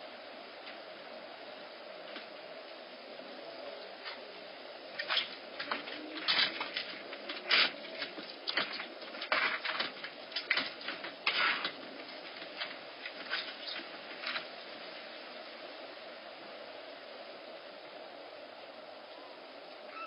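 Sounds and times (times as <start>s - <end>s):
kittens scuffling on wooden deck: 5.0s - 14.6s.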